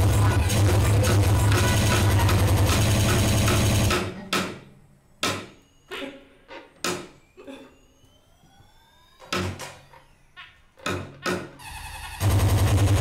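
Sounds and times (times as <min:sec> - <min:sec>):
loud music: 0:00.0 - 0:03.8.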